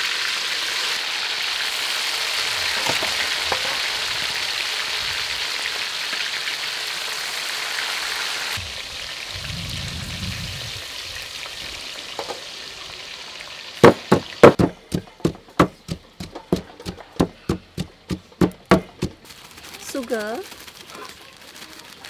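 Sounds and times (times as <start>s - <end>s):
fish sizzling in hot oil: 0.0s - 22.0s
wooden pestle pounding in mortar: 13.8s - 19.2s.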